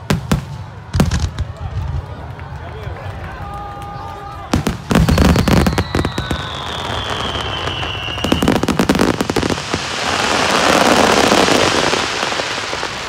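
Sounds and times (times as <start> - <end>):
dense firework crackling: 0.0 - 2.6, 4.1 - 13.0
firework whistle falling in pitch: 5.0 - 8.7.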